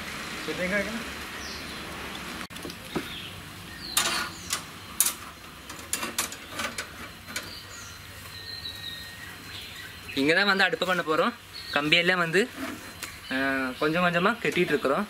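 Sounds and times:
steel rods and tools knocking: 4.0s - 7.6s.

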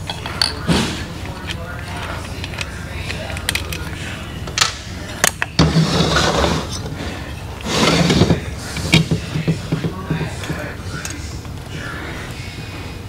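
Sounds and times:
tools clinking on metal parts: 0.0s - 5.6s
steady low hum: 0.0s - 13.0s
scraping and rustling: 5.1s - 12.9s.

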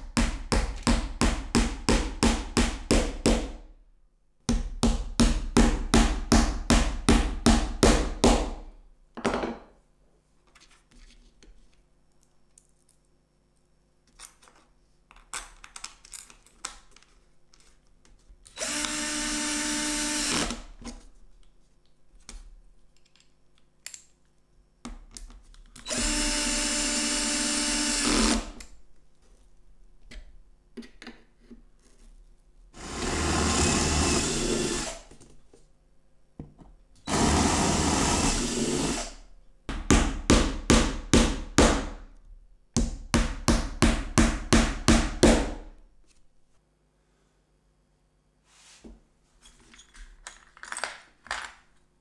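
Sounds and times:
power drill running: 18.6s - 20.6s, 25.8s - 28.5s, 32.8s - 35.1s, 37.1s - 39.2s.

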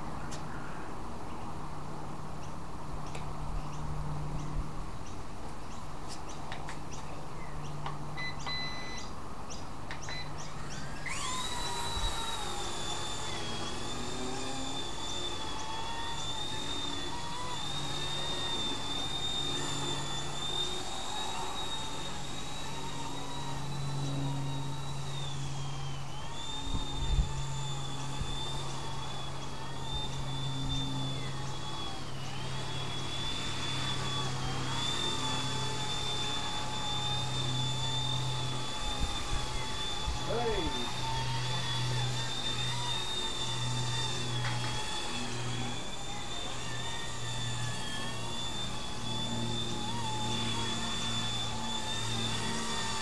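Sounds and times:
toy helicopter motor whining: 2.3s - 53.0s
short electronic beeps: 8.2s - 9.1s.

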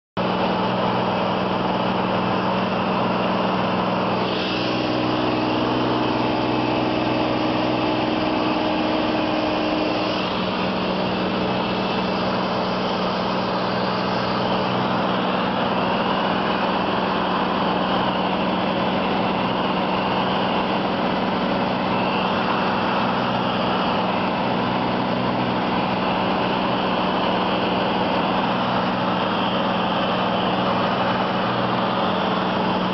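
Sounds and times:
propeller engine humming: 0.2s - 32.9s
rushing air: 0.2s - 32.9s.

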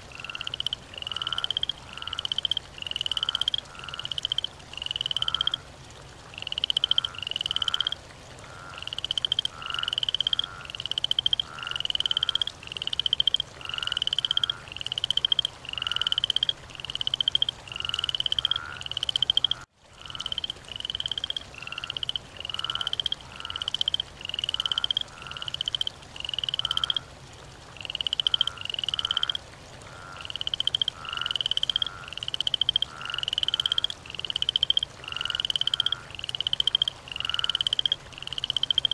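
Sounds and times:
frogs croaking in chorus: 0.0s - 38.9s.

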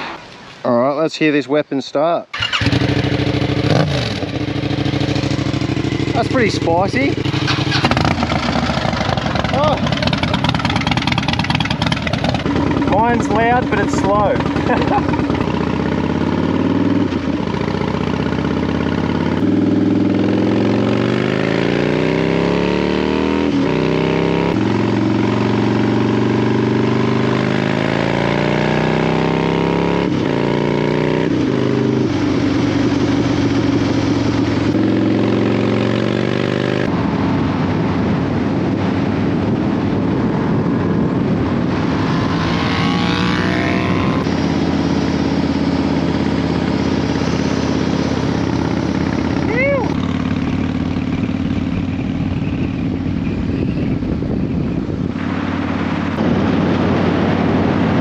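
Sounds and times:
motorcycle engines: 2.3s - 58.0s
higher-pitched engine revving: 2.4s - 32.1s, 41.0s - 50.1s.

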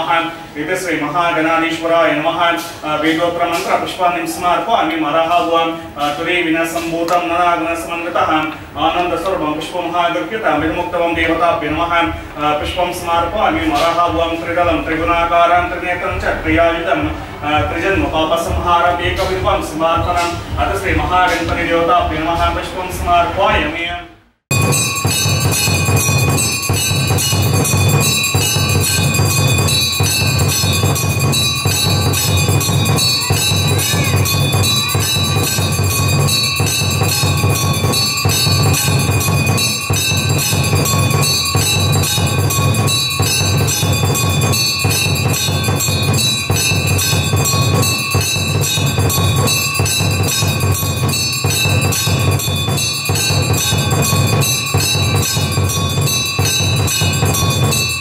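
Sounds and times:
temple bells ringing rapidly: 0.0s - 23.4s, 24.5s - 58.0s.

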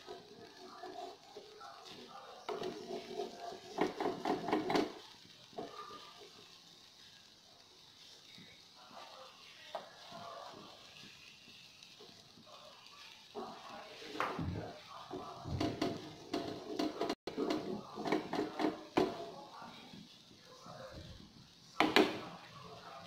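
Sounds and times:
wooden spatula knocking on frying pan: 3.7s - 5.0s, 15.1s - 19.3s, 21.8s - 22.2s
indistinct voices: 12.4s - 23.0s.

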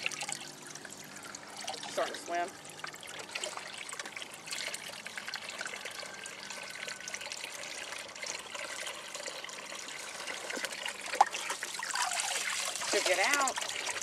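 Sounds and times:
hose water splashing into pool: 7.4s - 14.0s.

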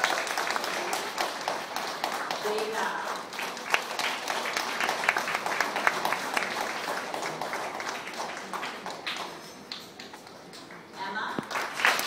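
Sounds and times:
audience applauding: 0.0s - 10.1s, 11.4s - 12.0s.

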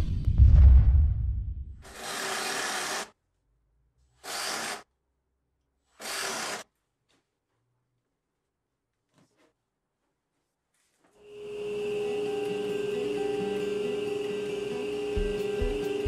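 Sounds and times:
hand-held power tool running: 1.8s - 3.1s, 4.2s - 4.8s, 6.0s - 6.6s.

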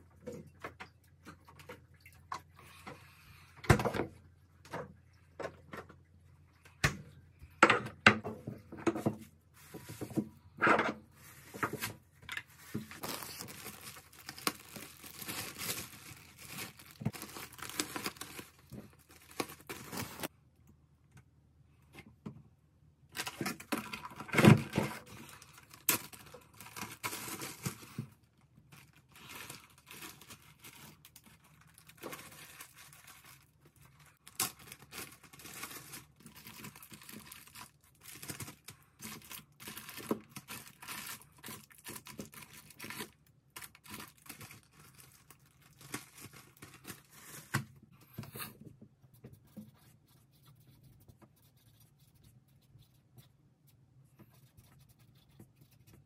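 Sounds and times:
plastic wrap crinkling and tearing: 11.4s - 20.3s, 23.1s - 47.7s.

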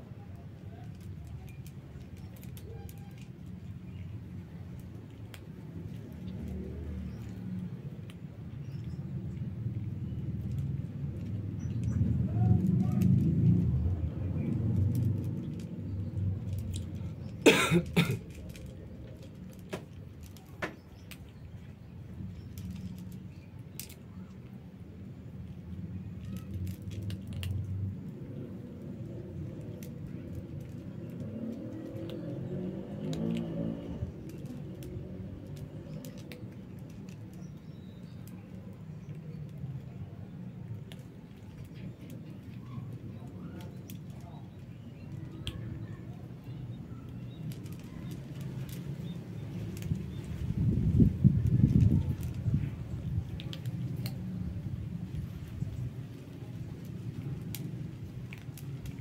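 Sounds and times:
kittens crunching dry kibble: 0.0s - 59.0s
loud coughs: 17.4s - 18.2s.

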